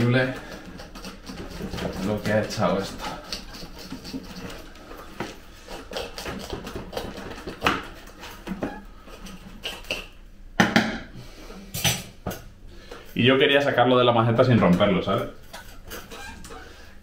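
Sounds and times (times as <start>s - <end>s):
clicks knocks and scrapes: 0.3s - 10.1s.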